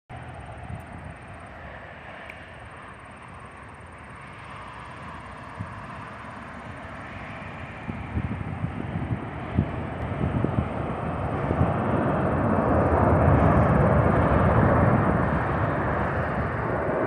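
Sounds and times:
distant jet airliner rumble: 0.1s - 17.0s
wind buffeting microphone: 4.8s - 17.0s.

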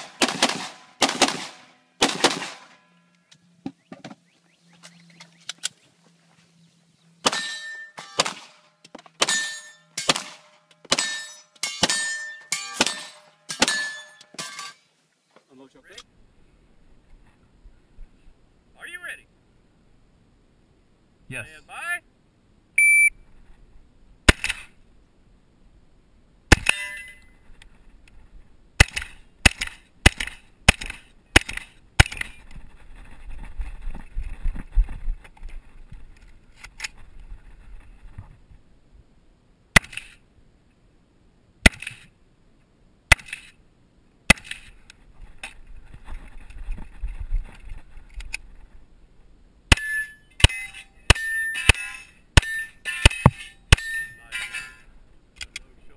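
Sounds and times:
rapid pistol shots: 0.0s - 2.8s, 7.2s - 13.8s, 28.8s - 32.3s
shotgun shots: 0.0s - 2.8s, 7.2s - 14.0s, 24.3s - 24.7s, 28.8s - 32.3s
single gunshots: 0.0s - 2.8s, 7.2s - 14.0s
rustling movement: 0.0s - 11.7s.

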